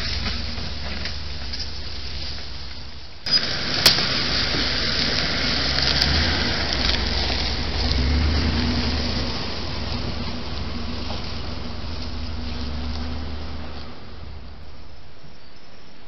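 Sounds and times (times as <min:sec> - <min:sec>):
truck engine driving past: 0:03.3 - 0:15.2.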